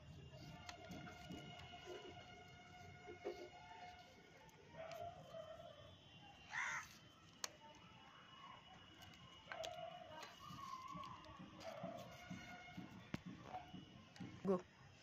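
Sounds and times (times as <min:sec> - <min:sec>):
crow cawing: 0:06.5 - 0:06.9.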